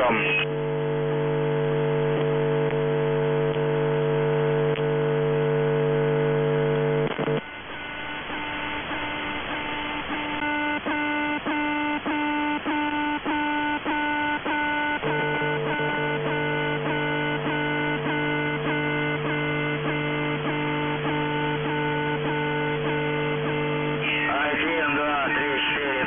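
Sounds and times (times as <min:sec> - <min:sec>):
radio static hiss: 0:00.0 - 0:26.0
steady buzzy tone: 0:00.0 - 0:26.0
pulsed tone pattern with clicks: 0:06.8 - 0:24.1.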